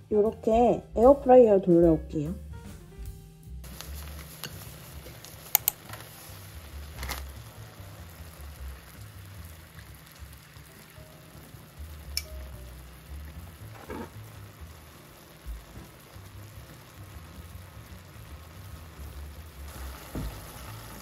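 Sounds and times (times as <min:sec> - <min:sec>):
faint background music: 0:00.0 - 0:21.0
sharp clicks and taps: 0:05.5 - 0:05.8.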